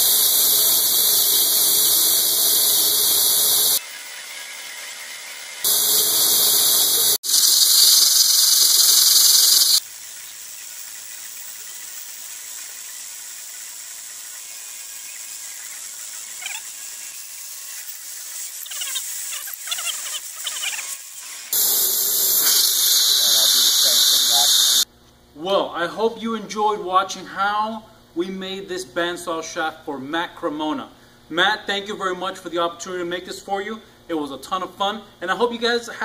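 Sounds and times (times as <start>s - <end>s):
mist coolant hissing: 0.0s - 24.9s.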